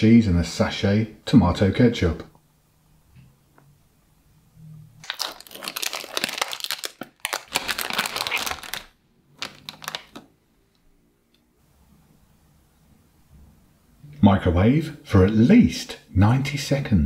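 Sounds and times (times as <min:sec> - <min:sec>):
plastic film crinkling: 0:05.0 - 0:10.3.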